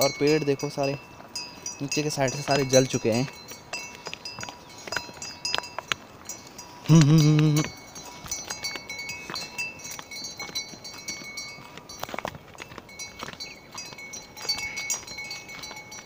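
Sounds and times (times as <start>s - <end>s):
livestock neck bells tinkling: 0.0s - 16.0s.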